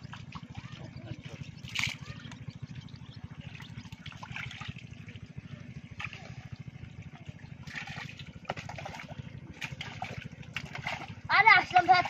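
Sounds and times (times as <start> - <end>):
water pump engine chugging: 0.0 - 12.0
water trickling: 0.0 - 12.0.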